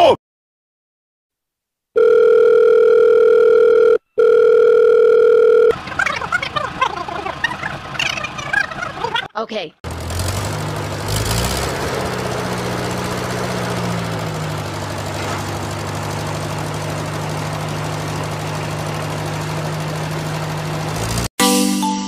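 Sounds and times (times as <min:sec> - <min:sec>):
tractor engine idling: 0:05.7 - 0:09.3, 0:09.9 - 0:21.3.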